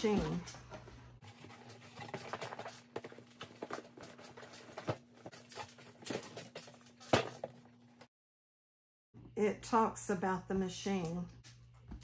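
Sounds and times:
cardboard and plastic rustling: 0.0 - 7.8.

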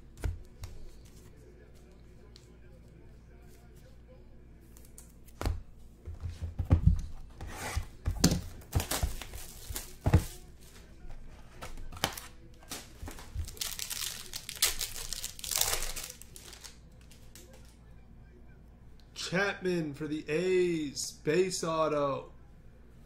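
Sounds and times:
plastic wrapping crinkling: 11.9 - 17.7.

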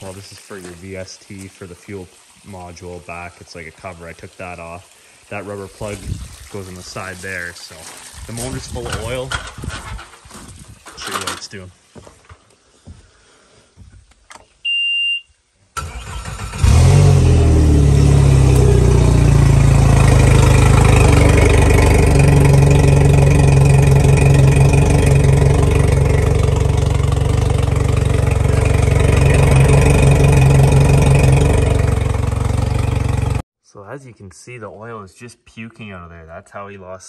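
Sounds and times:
short electronic beep: 14.6 - 15.3
outboard engine running: 17.8 - 33.4.

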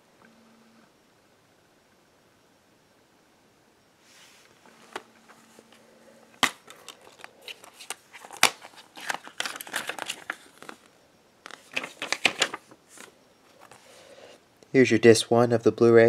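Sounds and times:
plastic case clicks: 6.4 - 9.9
paper insert rustling: 6.4 - 10.9, 11.5 - 13.8.

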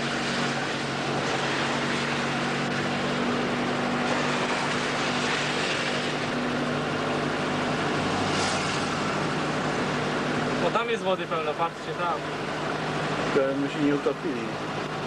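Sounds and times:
low engine hum: 0.0 - 15.0
road and wind noise: 0.0 - 15.0.

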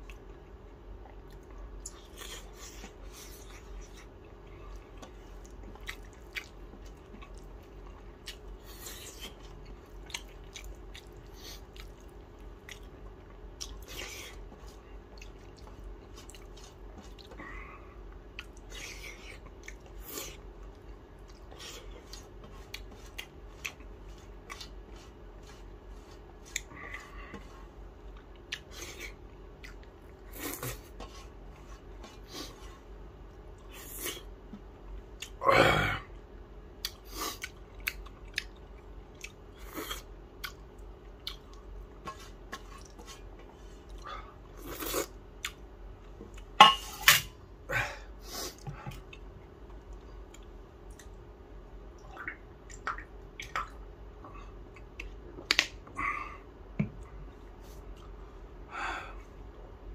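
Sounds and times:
chewing and mouth clicks: 1.0 - 17.4, 18.2 - 27.1, 28.0 - 31.0, 36.8 - 44.0, 44.6 - 46.5, 48.9 - 51.2, 54.6 - 55.8.

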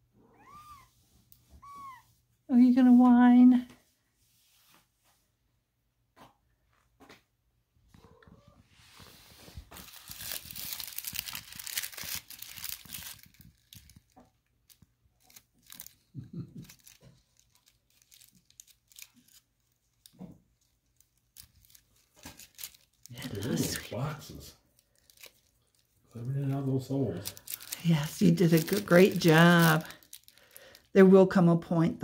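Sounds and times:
foil ball crinkling: 9.0 - 31.0.

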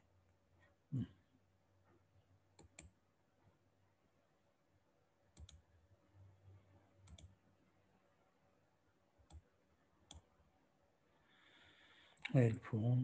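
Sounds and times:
faint room hum: 0.0 - 13.0.

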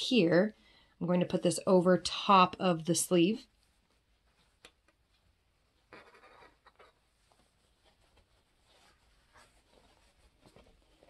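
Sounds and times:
fabric rustling: 3.5 - 11.0.

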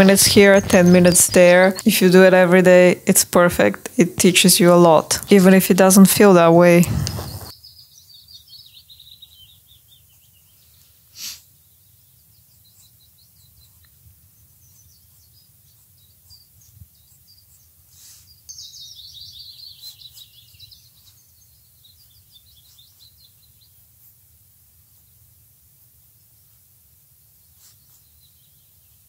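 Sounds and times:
songbird trilling: 0.0 - 1.9, 18.3 - 23.4
high bird chirps: 0.0 - 2.5, 6.3 - 23.8
low outdoor rumble: 0.0 - 7.5
brief puff of noise: 11.1 - 11.5.

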